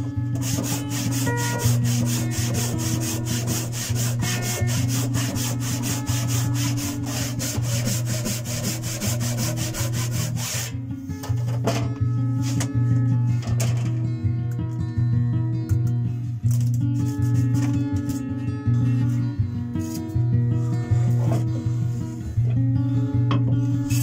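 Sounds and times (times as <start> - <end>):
handsaw cutting wood: 0.4 - 10.8.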